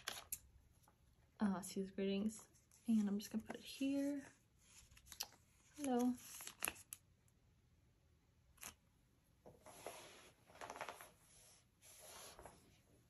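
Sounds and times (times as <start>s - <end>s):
plastic sleeves rustling: 2.2s - 7.0s, 9.6s - 12.9s.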